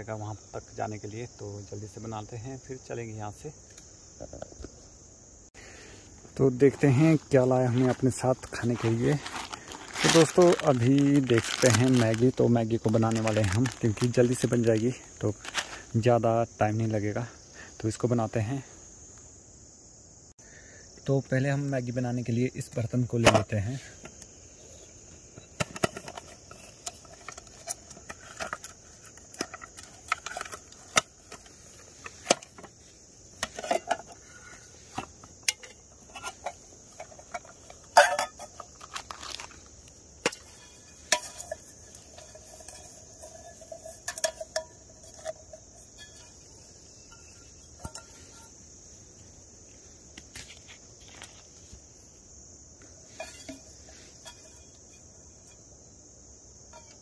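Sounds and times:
crickets chirping: 0.0 - 57.0
cook pot and lid clinking: 42.2 - 46.4.

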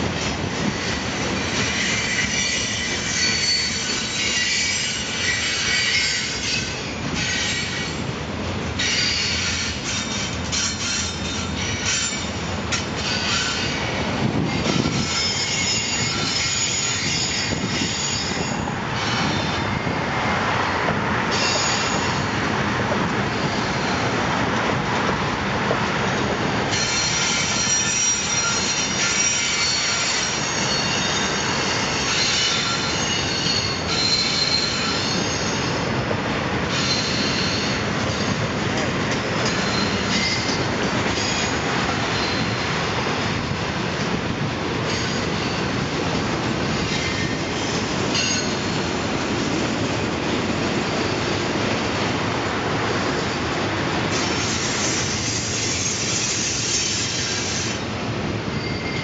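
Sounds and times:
freight train rolling past: 0.0 - 59.0
train wheels squealing: 0.8 - 8.0, 8.8 - 20.0, 21.3 - 22.4, 26.7 - 36.0, 36.7 - 42.9, 44.8 - 45.8, 46.6 - 49.0, 53.1 - 59.0.

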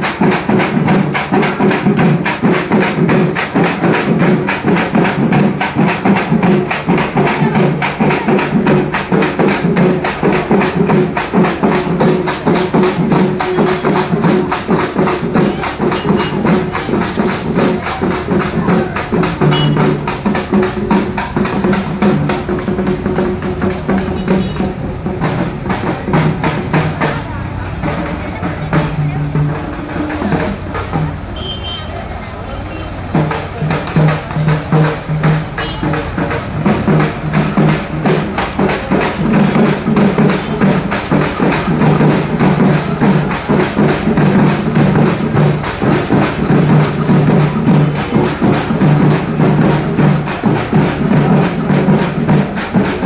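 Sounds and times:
drummers beating large drums: 0.0 - 53.0.

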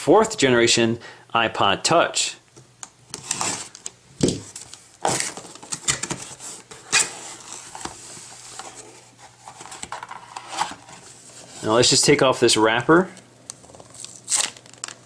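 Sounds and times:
cardboard flaps scraping: 3.2 - 11.8
cardboard rustling: 3.2 - 12.1.

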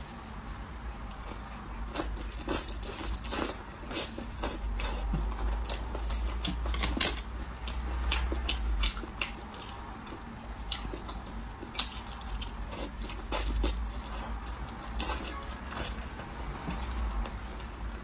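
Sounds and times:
wet mouth smacks and chewing: 2.0 - 9.8, 10.6 - 15.2.

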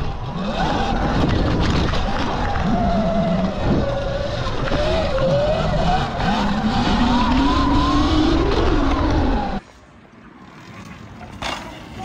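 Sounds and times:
electric dirt bike motor whine: 0.0 - 9.6.

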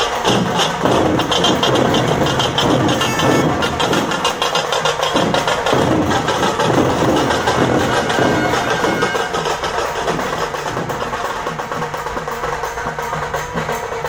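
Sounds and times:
drums beating fast rhythm: 0.0 - 14.0
wind instrument playing: 2.0 - 4.4, 7.2 - 10.0.

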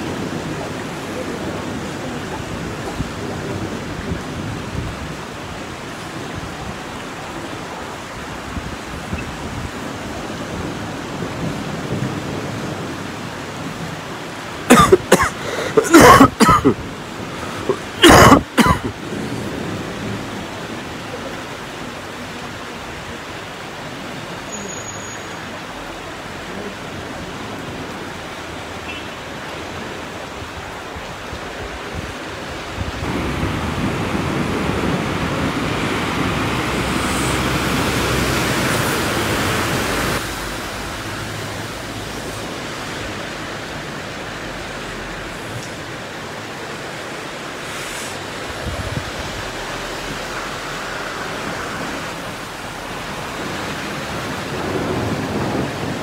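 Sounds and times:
car driving through floodwater: 0.0 - 56.0
rain falling on flooded street: 0.0 - 56.0.

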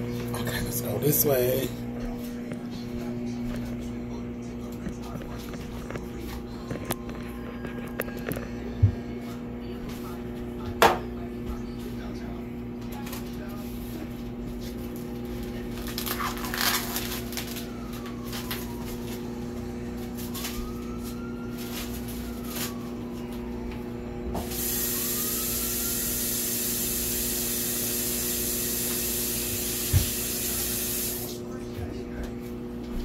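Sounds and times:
steady low hum: 0.0 - 33.0
kitchen tap running water: 24.5 - 31.4.

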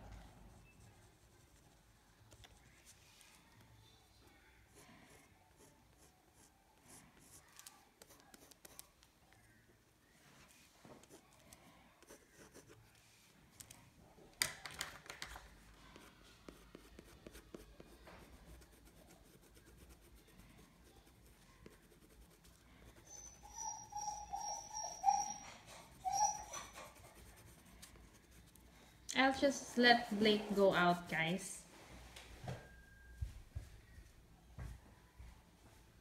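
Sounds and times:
pastel scratching on paper: 16.0 - 23.1, 25.2 - 28.7
dog whining: 23.0 - 27.0.

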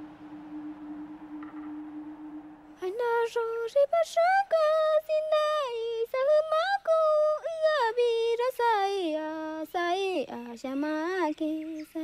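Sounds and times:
woman singing unaccompanied: 2.8 - 12.0.

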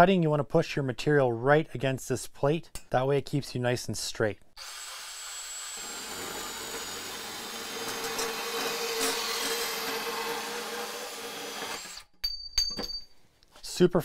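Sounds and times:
bandsaw motor whine: 4.6 - 12.0
saw blade cutting metal pipe: 5.7 - 12.1.

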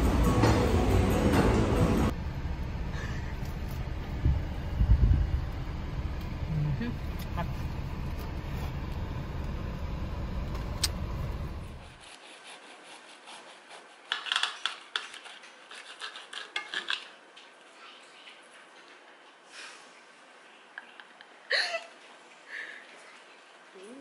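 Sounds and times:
low rumble in car cabin: 1.5 - 11.9
knife sawing on ceramic plate: 11.9 - 14.4.

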